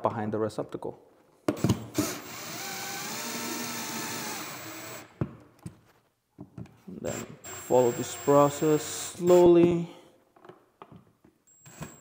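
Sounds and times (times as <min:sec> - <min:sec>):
cordless drill driving screw: 0:01.6 - 0:05.1, 0:07.1 - 0:09.4.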